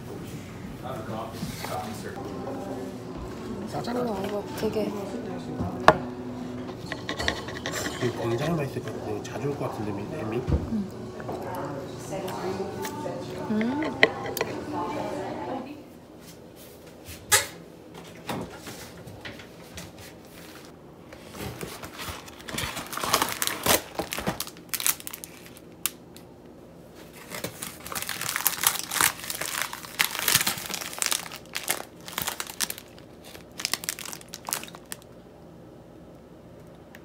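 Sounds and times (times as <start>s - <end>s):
paper bag crinkling: 21.6s - 25.8s, 27.0s - 35.1s.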